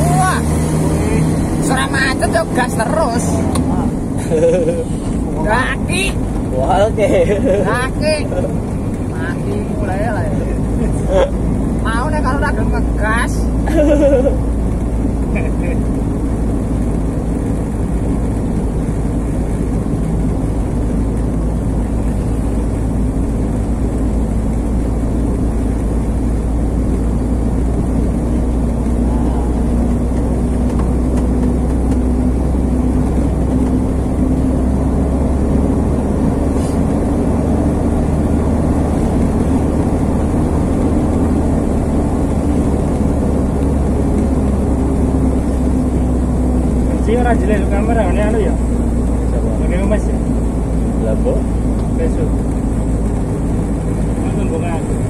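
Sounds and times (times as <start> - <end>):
road noise: 0.0 - 55.0
truck engine running: 0.0 - 55.0.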